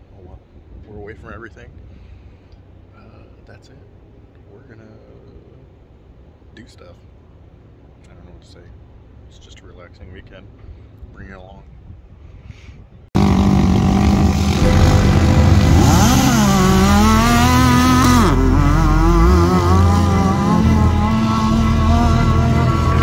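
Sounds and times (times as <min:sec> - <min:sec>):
off-road engines revving: 0:13.2 - 0:23.0.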